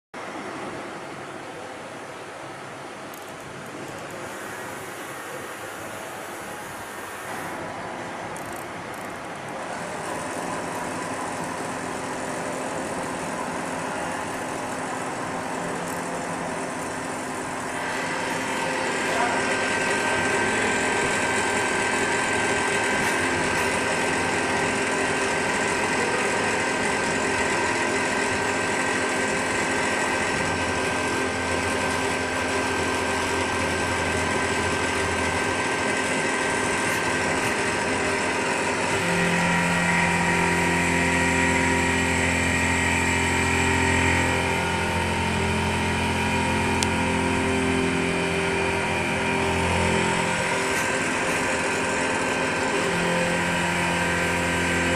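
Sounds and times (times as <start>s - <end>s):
milling machine whine: 2.5s - 54.9s
metal cutting noise: 8.3s - 54.9s.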